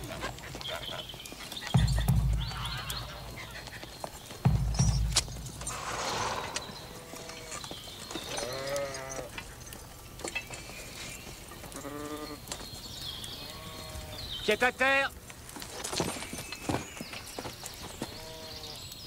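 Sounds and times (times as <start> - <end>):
heavy low thumps: 1.8 - 3.4, 4.4 - 7.2
sheep bleating: 8.4 - 9.3, 11.8 - 12.4.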